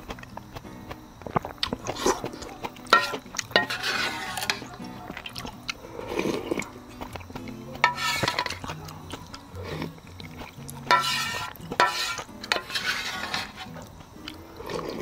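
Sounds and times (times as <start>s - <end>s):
background music: 0.0s - 15.0s
noodle slurping: 1.4s - 7.2s, 7.8s - 13.8s
utensils clicking against bowl: 1.6s - 5.7s.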